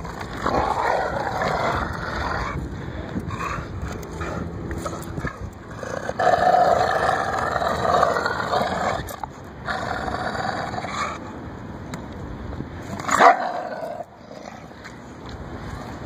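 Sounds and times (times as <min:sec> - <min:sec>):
dogs growling in play: 0:00.0 - 0:02.7, 0:03.3 - 0:11.2.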